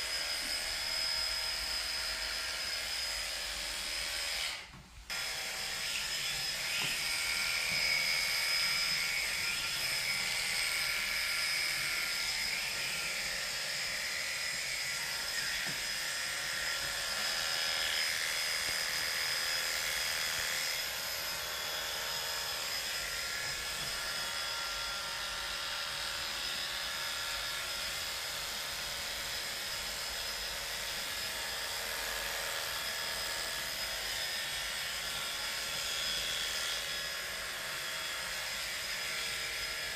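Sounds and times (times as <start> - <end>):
electric clippers buzzing: 0.0 - 39.9.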